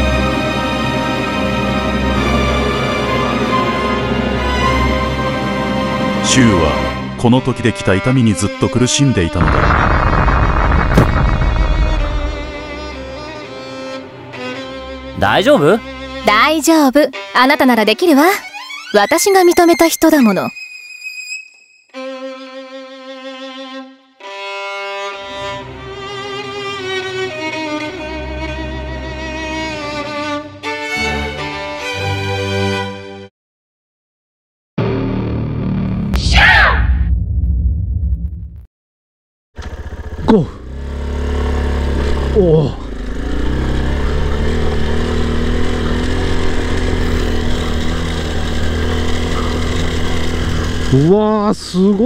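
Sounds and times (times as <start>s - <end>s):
low string accompaniment: 0.0s - 9.4s, 11.1s - 18.8s, 22.0s - 33.2s
violin playing long notes: 11.2s - 16.3s, 21.9s - 33.0s
motorcycle engine running: 39.6s - 52.0s.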